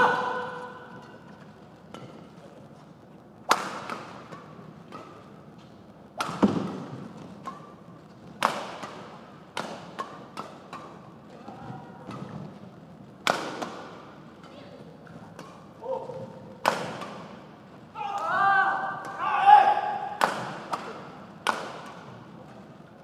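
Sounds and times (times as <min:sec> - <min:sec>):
rackets striking shuttlecock: 0:03.5 - 0:11.3, 0:13.2 - 0:17.5, 0:19.8 - 0:22.6.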